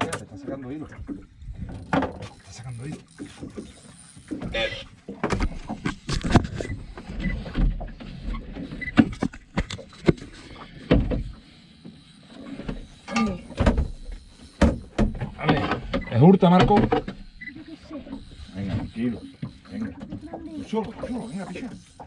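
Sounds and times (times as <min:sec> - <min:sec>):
fishing reel knocks and clicks: 0:08.1 - 0:17.6, 0:18.2 - 0:22.0.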